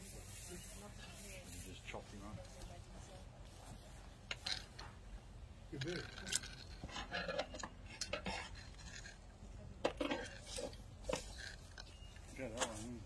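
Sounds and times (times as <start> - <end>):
metal hook clinking on concrete: 5.7 - 9.2.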